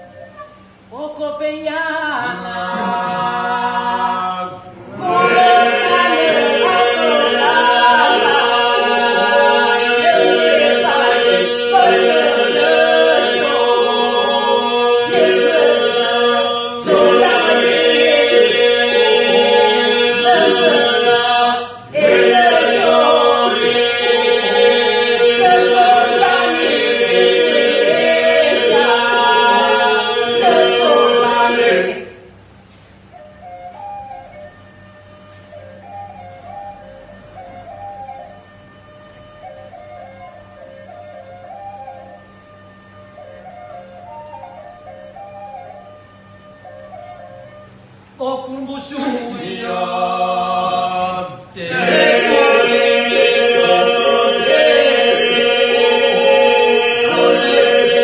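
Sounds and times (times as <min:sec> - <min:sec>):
held vocal drone: 0:01.9 - 0:32.4, 0:48.9 - 0:58.0
group of people singing: 0:02.1 - 0:32.3, 0:48.9 - 0:58.0.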